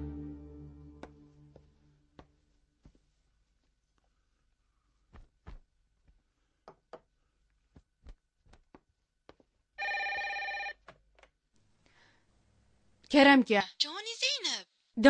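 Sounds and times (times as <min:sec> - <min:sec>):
landline telephone ringing: 0:09.8 - 0:10.8.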